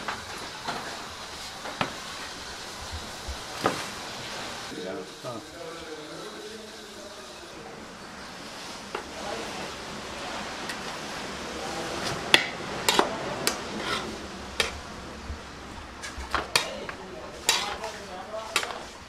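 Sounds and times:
steady hiss: 0:00.0 - 0:19.0
metal ladle scraping a pot: 0:12.8 - 0:14.8, 0:16.0 - 0:18.8.

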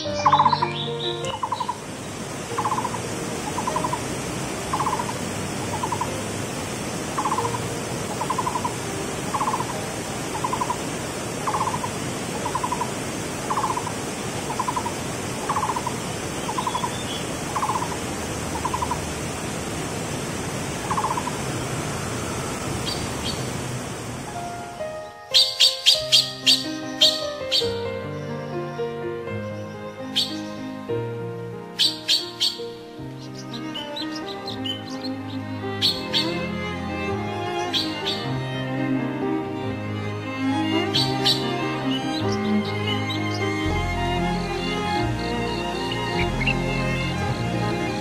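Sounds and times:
music: 0:00.0 - 0:12.8, 0:17.6 - 0:19.0, 0:24.3 - 0:48.0
trilled animal call: 0:00.2 - 0:01.8, 0:02.5 - 0:04.0, 0:04.7 - 0:06.1, 0:07.2 - 0:07.6, 0:08.2 - 0:10.8, 0:11.4 - 0:18.0, 0:18.6 - 0:19.0, 0:20.9 - 0:21.5, 0:40.8 - 0:43.5
waterfall rushing: 0:00.4 - 0:28.0, 0:31.6 - 0:48.0.

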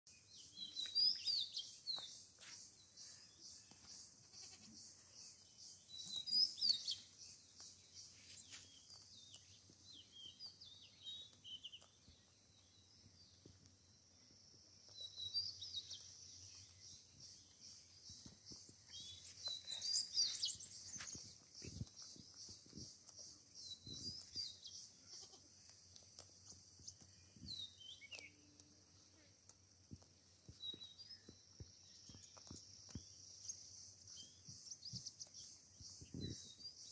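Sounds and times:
grass tearing and chewing: 0:05.8 - 0:13.8, 0:14.8 - 0:33.1.

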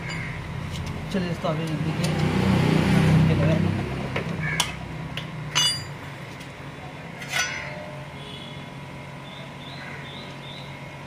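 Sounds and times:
metallic clink: 0:05.5 - 0:06.0.

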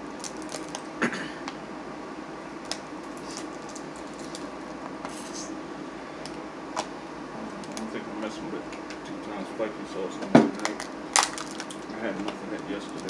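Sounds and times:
crab shells cracking: 0:00.2 - 0:00.9, 0:10.6 - 0:11.9.

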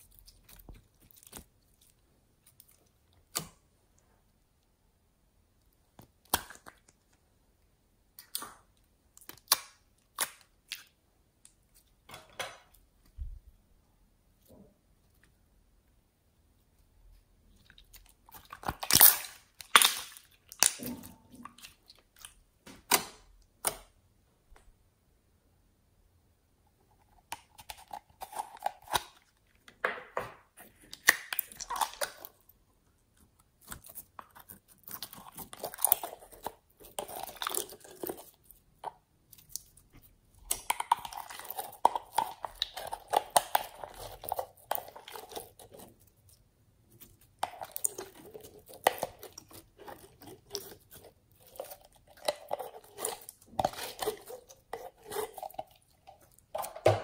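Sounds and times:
slime crackles and squishes: 0:00.0 - 0:03.6, 0:17.1 - 0:23.8, 0:30.6 - 0:57.0.

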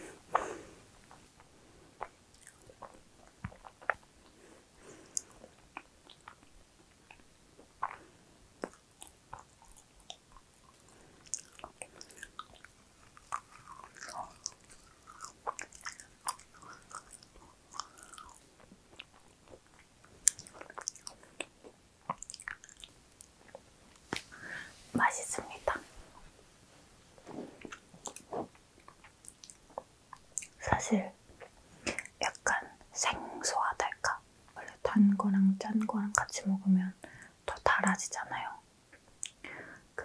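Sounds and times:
mouth clicks and smacks: 0:00.3 - 0:04.4, 0:05.1 - 0:24.3, 0:27.6 - 0:32.6, 0:37.1 - 0:39.6.

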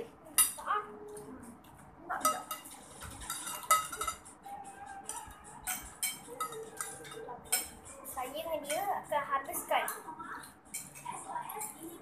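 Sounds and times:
cutlery clinking on plate: 0:02.2 - 0:08.0.

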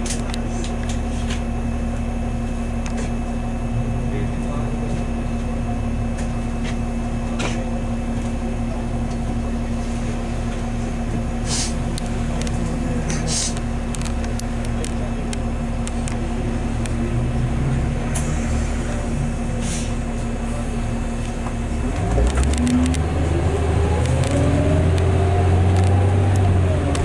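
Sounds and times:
bus diesel engine drone: 0:00.0 - 0:27.0
short air hisses: 0:11.4 - 0:11.8.

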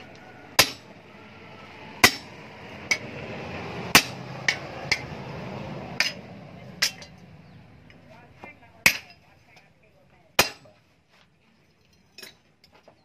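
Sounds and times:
hammer striking steel punch: 0:00.6 - 0:00.9, 0:02.0 - 0:02.3, 0:03.9 - 0:05.1, 0:10.4 - 0:10.7.

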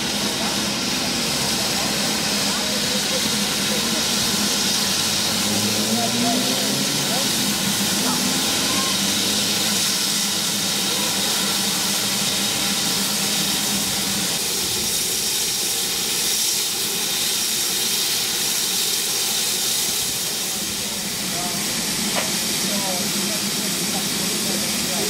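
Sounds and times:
steam hissing from locomotive: 0:00.0 - 0:25.0.

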